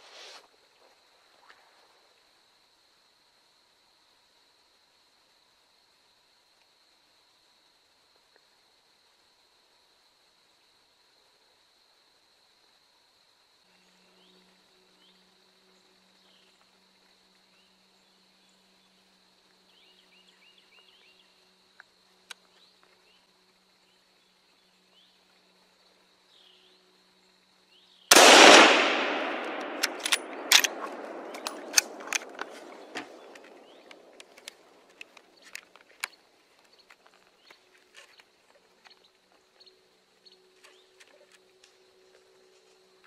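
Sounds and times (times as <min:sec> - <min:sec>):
gunshot with echo: 0:28.1 - 0:34.1
sharp cracks and snaps: 0:28.1 - 0:39.0.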